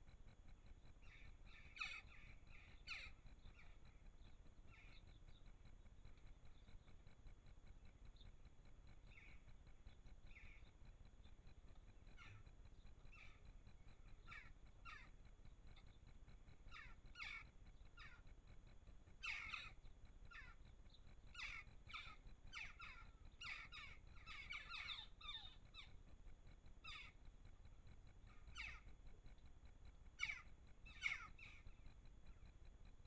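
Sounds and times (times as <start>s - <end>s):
crows giving harsh calls: 16.7s - 18.2s.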